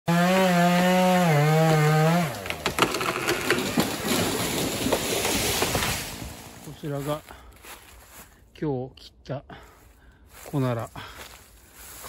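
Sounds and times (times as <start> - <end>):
chainsaw at full throttle: 0.1 - 6.6
tree cracking and splintering: 0.1 - 7.8
branches snapping and crashing: 0.2 - 7.8.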